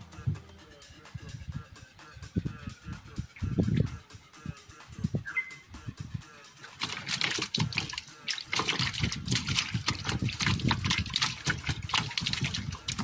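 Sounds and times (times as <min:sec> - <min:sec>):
water splashing and dripping: 0:06.6 - 0:13.0.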